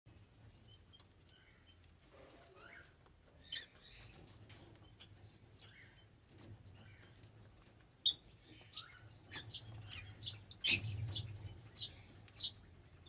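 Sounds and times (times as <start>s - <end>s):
lovebirds chirping: 0.1s - 13.0s.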